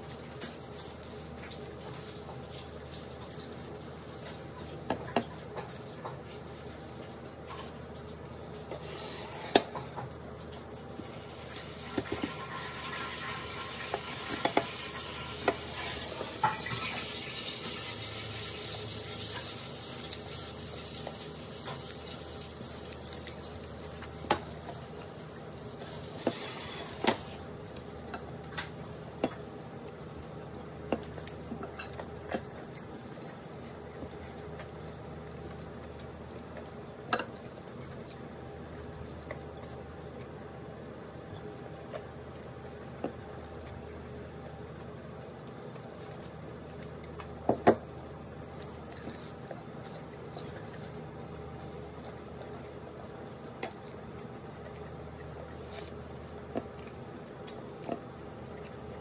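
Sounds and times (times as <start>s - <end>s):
chewing food: 9.8s - 59.0s.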